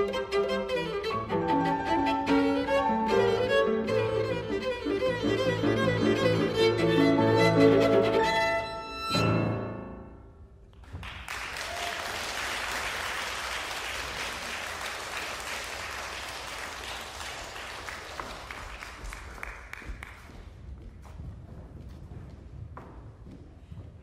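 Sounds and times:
audience applauding: 10.8s - 20.4s.

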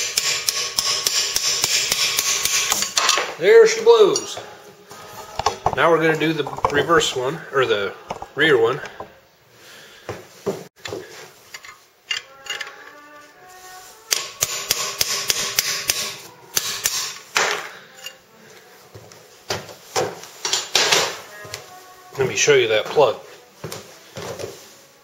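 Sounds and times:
hammer tapping metal rod: 0.0s - 2.9s, 5.2s - 7.0s, 8.1s - 9.1s.

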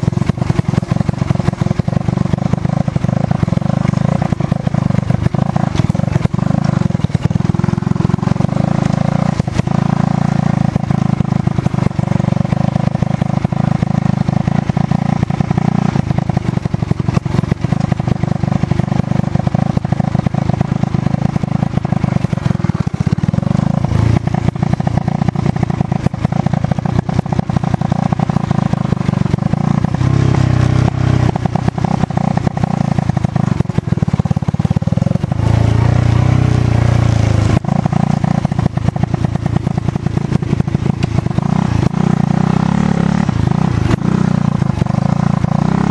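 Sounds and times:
motorcycle engine revving: 0.0s - 45.9s.

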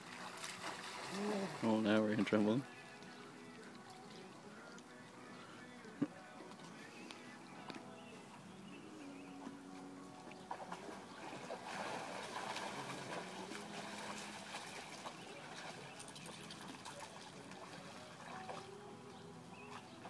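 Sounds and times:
dogs splashing through water: 0.0s - 1.9s, 10.3s - 20.0s
water sloshing and trickling: 0.0s - 5.0s, 7.8s - 20.0s.

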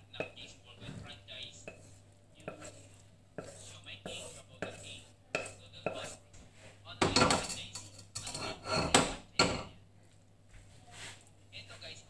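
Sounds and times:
wooden spatula scraping wok: 0.2s - 9.2s.

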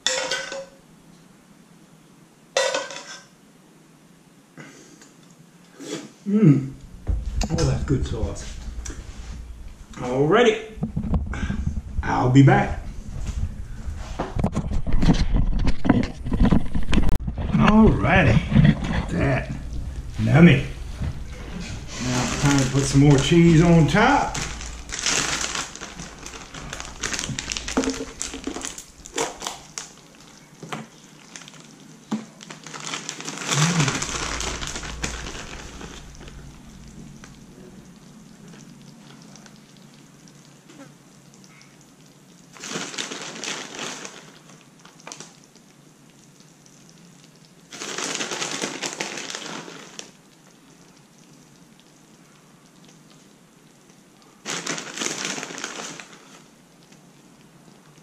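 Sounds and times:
crinkling and rustling: 6.7s - 40.9s, 42.4s - 45.7s, 47.7s - 50.2s, 54.4s - 57.0s.

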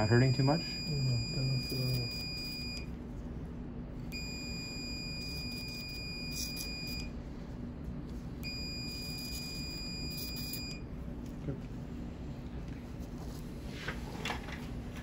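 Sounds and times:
high-pitched electrosurgical tone: 0.0s - 2.9s, 4.1s - 7.2s, 8.4s - 10.9s.

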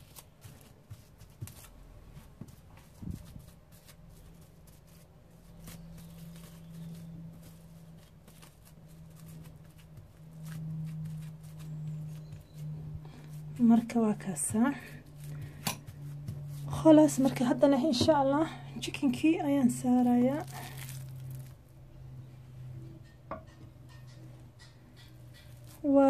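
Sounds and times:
rustling of cling film: 0.0s - 13.6s, 19.7s - 21.8s
low steady hum: 0.0s - 26.0s.

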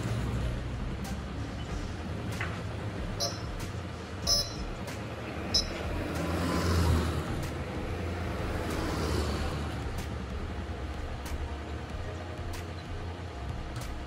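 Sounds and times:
vehicle engine hum and rumble: 0.0s - 14.0s
short high-pitched beep: 3.2s - 3.6s, 4.2s - 4.7s, 5.5s - 5.8s.

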